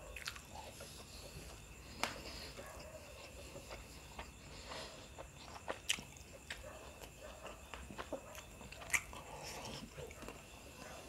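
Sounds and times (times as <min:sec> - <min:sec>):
man chewing: 0:00.0 - 0:11.0.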